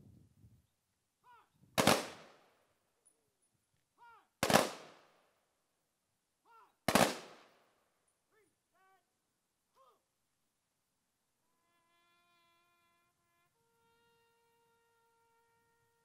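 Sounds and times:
rifle volleys: 0:01.8 - 0:02.4.

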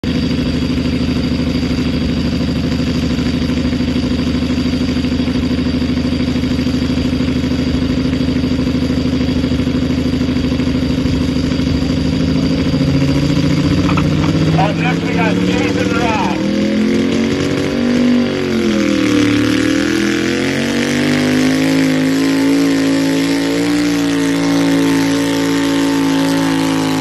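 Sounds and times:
tractor engine idling: 0:00.0 - 0:27.0
engine revving up: 0:11.7 - 0:27.0.

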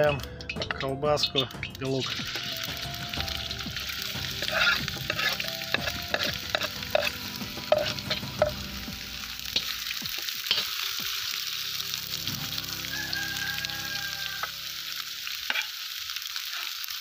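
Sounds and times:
food sizzling in hot oil: 0:00.0 - 0:17.0
metal skimmer scraping a pan: 0:04.4 - 0:08.6.

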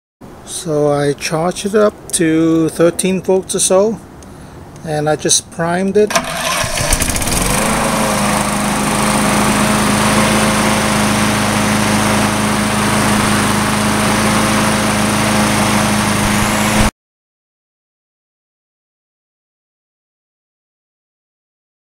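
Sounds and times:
lawn mower engine running: 0:06.1 - 0:16.9.

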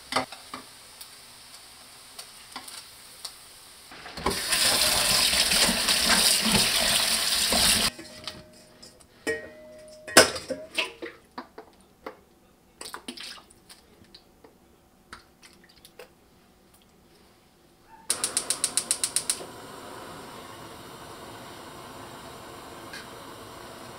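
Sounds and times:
tap water running into colander: 0:03.9 - 0:07.9.

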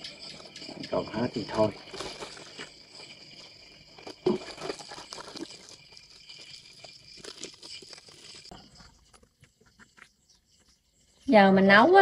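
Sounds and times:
plastic bags crinkling: 0:01.7 - 0:02.7, 0:04.0 - 0:08.5.

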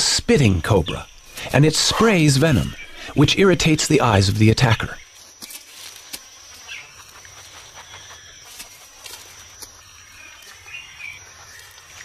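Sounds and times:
high-pitched insect drone: 0:00.0 - 0:12.0
dry leaves rustling: 0:05.0 - 0:12.0
animal sniffing: 0:06.1 - 0:09.8.

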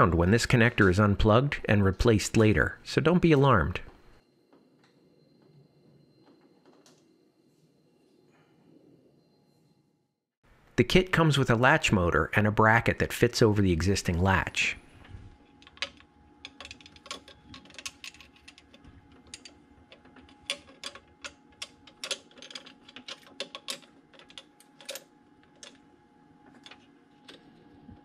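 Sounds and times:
metal parts clicking and tapping: 0:15.5 - 0:25.8.

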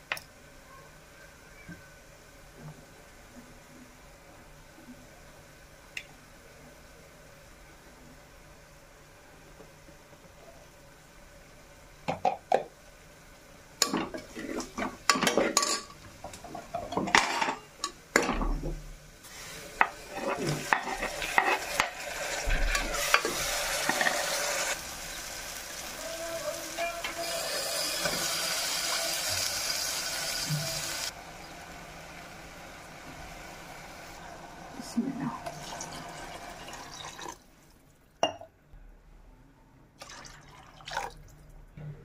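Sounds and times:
masala sizzling in oil: 0:01.0 - 0:37.8
spoon scraping metal pot: 0:20.1 - 0:22.0.

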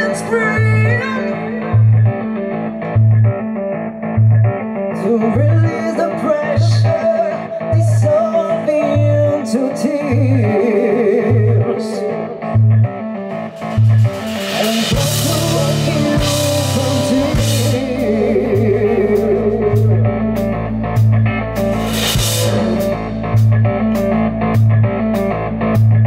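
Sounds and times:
live rock band playing: 0:00.0 - 0:26.0
cymbals and drums crashing: 0:13.6 - 0:17.8, 0:21.6 - 0:24.1
pulsing low bass note: 0:15.0 - 0:26.0.

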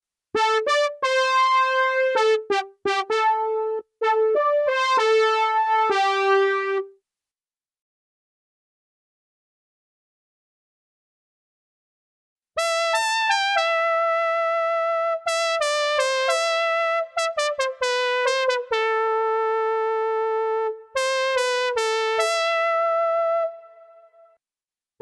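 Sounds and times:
synthesizer brass melody: 0:00.4 - 0:07.0, 0:12.6 - 0:24.4.

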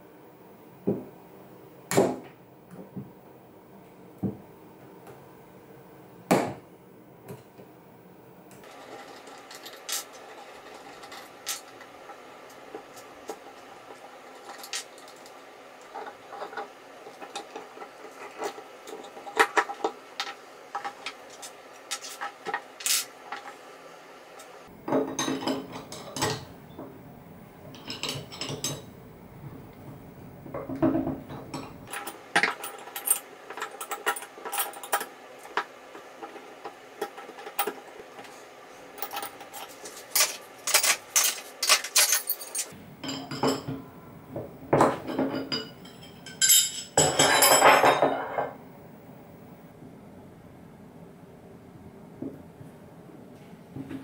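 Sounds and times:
metal tools clinking: 0:39.0 - 0:43.9, 0:44.8 - 0:48.6.

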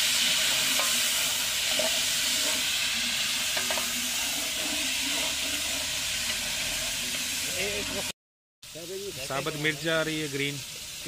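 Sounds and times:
vegetables sizzling in a pot: 0:00.0 - 0:11.0.

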